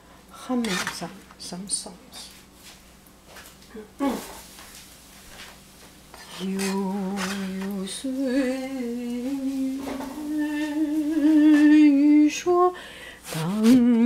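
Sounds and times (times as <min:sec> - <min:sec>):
woman humming: 0:03.7 - 0:04.3, 0:06.4 - 0:12.7.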